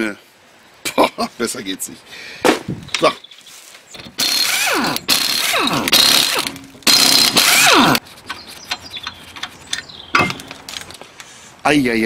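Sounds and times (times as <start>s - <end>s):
impact wrench hammering and whining: 4.0s - 10.6s.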